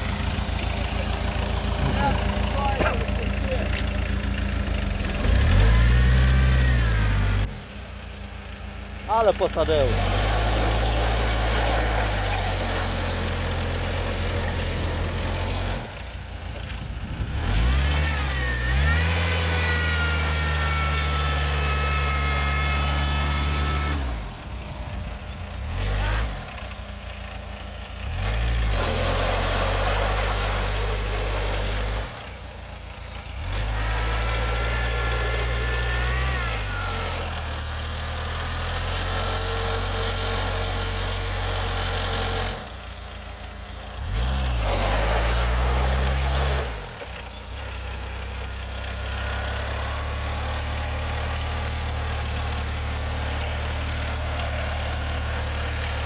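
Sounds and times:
tractor engine revving hard: 0.0s - 56.0s.

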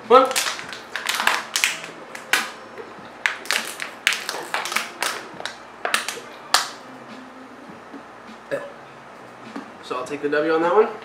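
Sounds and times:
plastic bottles crackling: 0.1s - 6.8s.

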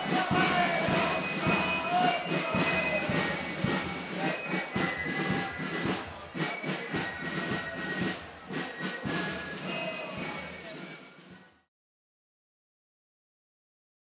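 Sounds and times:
band music: 0.0s - 11.2s
crowd noise: 0.0s - 11.6s.

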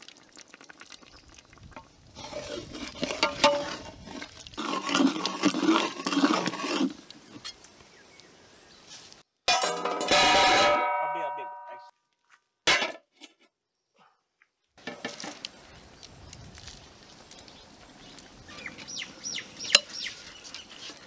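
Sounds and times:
ladle stirring thick paste in pot: 2.2s - 7.5s
metallic clang: 9.5s - 11.9s.

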